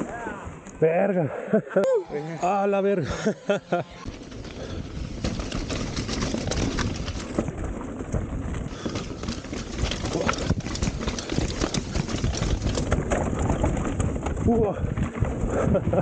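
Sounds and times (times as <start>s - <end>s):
bike tyres crunching over dirt: 2.2s - 16.0s
bike knocking and rattling: 4.1s - 16.0s.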